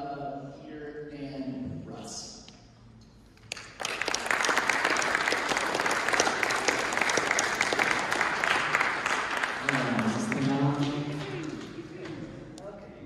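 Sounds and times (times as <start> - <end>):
audience applauding: 3.4 - 12.1.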